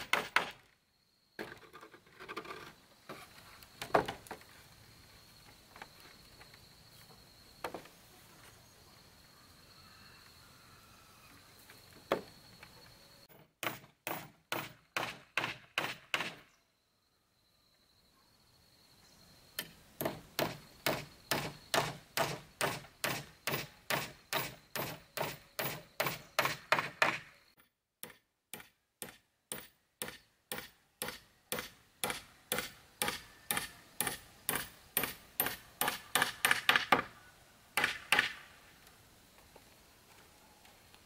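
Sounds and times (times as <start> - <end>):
hammer striking nails into wood: 0.0 - 0.6, 13.6 - 16.4, 19.6 - 27.3, 28.0 - 37.1, 37.8 - 38.4.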